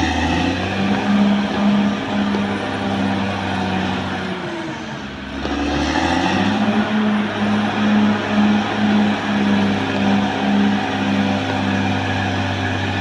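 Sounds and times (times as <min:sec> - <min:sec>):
bulldozer diesel engine droning: 0:00.0 - 0:13.0.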